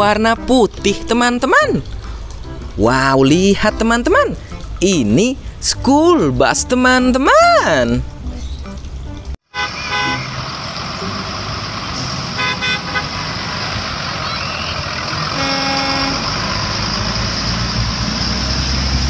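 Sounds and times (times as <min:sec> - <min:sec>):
buses driving past: 0:07.3 - 0:19.0
vehicle horn: 0:09.5 - 0:10.5, 0:12.2 - 0:13.4, 0:15.3 - 0:16.4
tyres hissing on wet road: 0:09.6 - 0:19.0.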